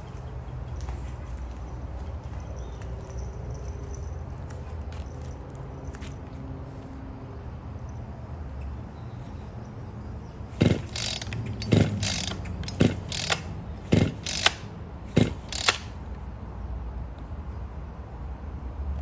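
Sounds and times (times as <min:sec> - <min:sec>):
chainsaw pull-starter whirring: 0:10.5 - 0:16.0.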